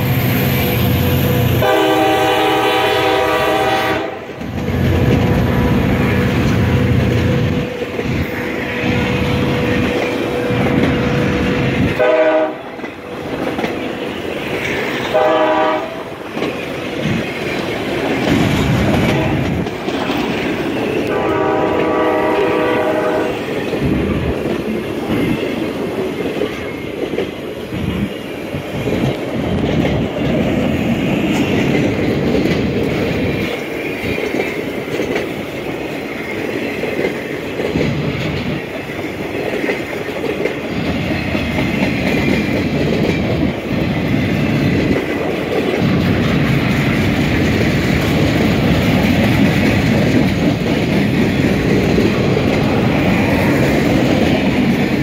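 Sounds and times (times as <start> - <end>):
train horn: 0.8 - 12.8, 15.1 - 16.2, 19.0 - 19.6, 21.0 - 23.5
wheels clacking over rail joints: 3.2 - 55.0.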